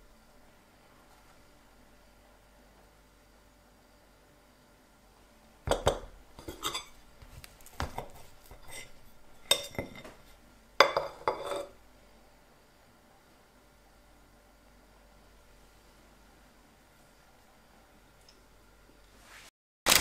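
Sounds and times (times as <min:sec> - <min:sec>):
knife scraping and clinking on plate: 0:05.7 - 0:07.0, 0:07.9 - 0:10.2, 0:10.8 - 0:11.8.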